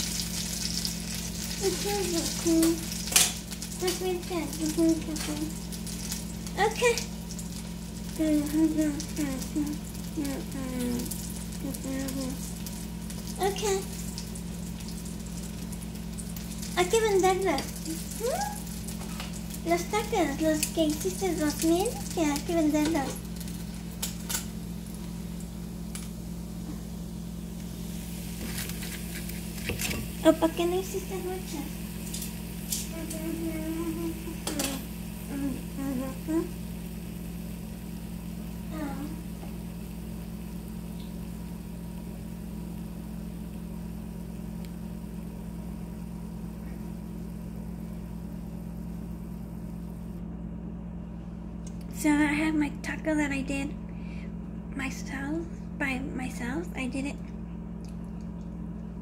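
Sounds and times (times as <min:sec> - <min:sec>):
steady low hum: 0:00.0 - 0:59.0
metal tongs clicking on pan: 0:34.4 - 0:34.8.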